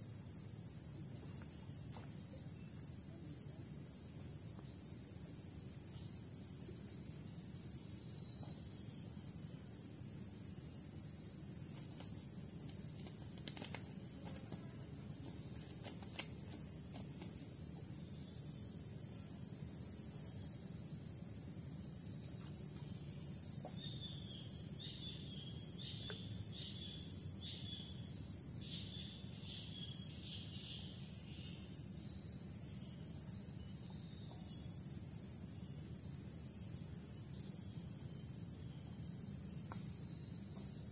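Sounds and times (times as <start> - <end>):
insects droning: 0.0 - 40.9.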